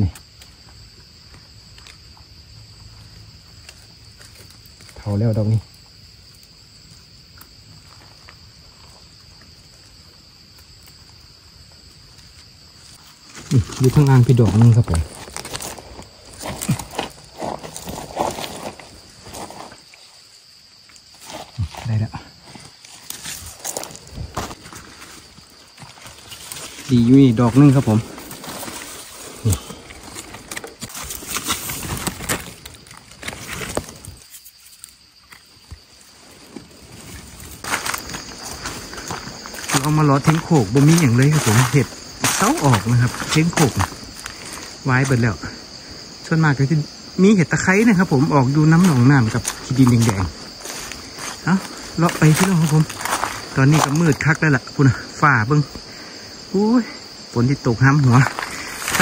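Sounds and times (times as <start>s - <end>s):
insects chirring: 0.0s - 59.0s
leaf litter rustles: 22.4s - 34.5s
knife scraping in gritty soil: 28.0s - 44.7s.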